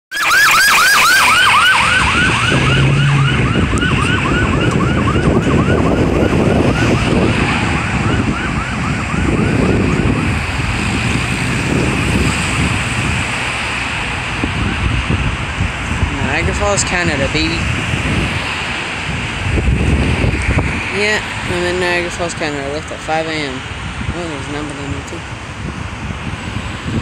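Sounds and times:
emergency siren yelping: 0.1 - 16.5
road traffic noise: 0.1 - 27.0.

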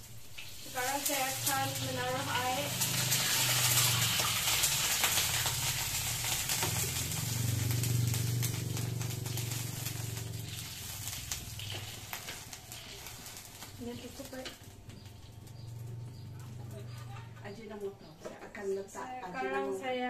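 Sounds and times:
water hissing in hot pan: 0.0 - 15.1.

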